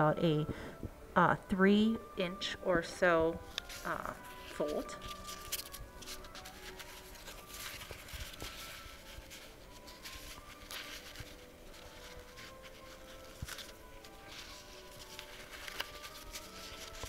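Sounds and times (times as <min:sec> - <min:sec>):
crepe paper rustling and crinkling: 0:03.4 - 0:17.0.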